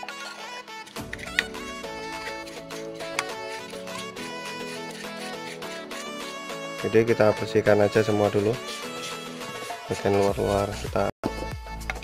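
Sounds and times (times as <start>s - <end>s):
instrumental music with held notes: 0.0s - 12.0s.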